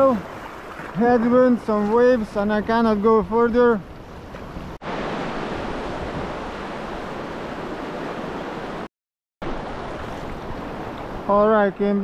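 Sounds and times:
surf rushing: 0:00.0 - 0:12.0
wind on microphone: 0:02.1 - 0:08.8.

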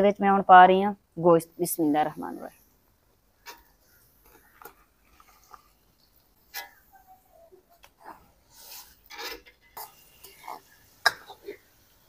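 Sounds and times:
metal spatula scraping pan: 0:08.6 - 0:11.7.

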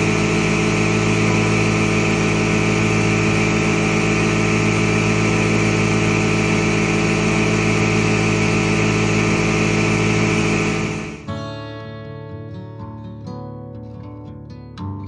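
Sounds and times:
workshop machine humming: 0:00.0 - 0:11.3.

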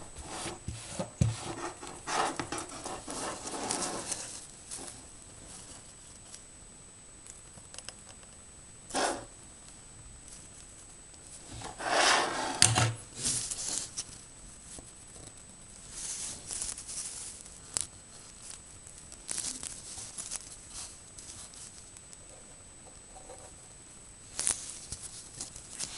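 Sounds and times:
board rustling and scraping: 0:00.1 - 0:05.9, 0:11.4 - 0:14.1.

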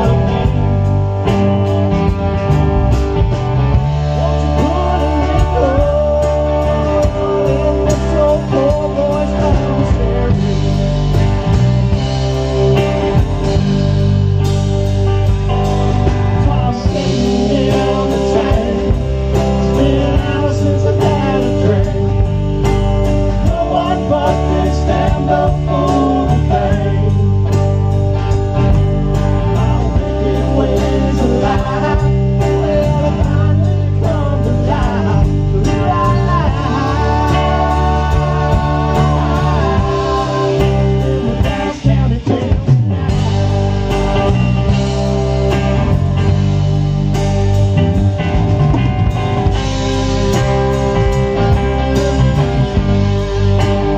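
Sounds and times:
man singing: 0:00.0 - 0:01.0, 0:03.7 - 0:11.6, 0:15.5 - 0:27.8, 0:29.4 - 0:43.6, 0:51.1 - 0:52.9
bass guitar: 0:00.0 - 0:53.9
drum kit beat: 0:00.0 - 0:53.9
electric guitars: 0:00.0 - 0:53.9.

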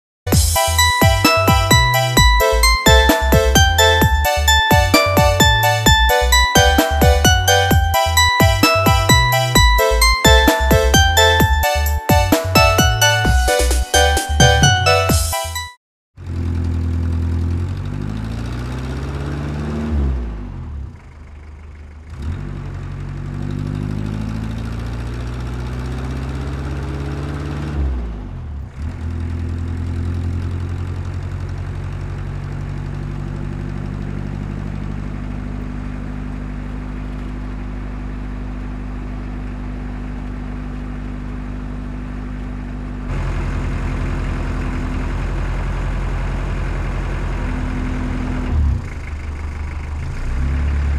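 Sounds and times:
diesel engine revving: 0:16.2 - 0:38.9, 0:43.0 - 0:50.9.

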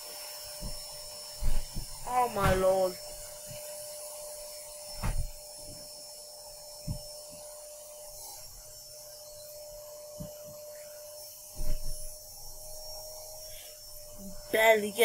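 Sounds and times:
faint steady hum: 0:00.0 - 0:15.0
hands bumping and rubbing objects: 0:05.0 - 0:05.4.

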